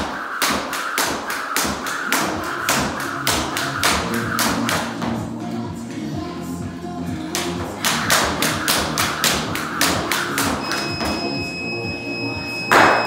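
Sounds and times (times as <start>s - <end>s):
jump rope slapping floor: 0.0s - 5.2s, 7.4s - 11.2s
long electronic timer beep: 10.6s - 13.0s.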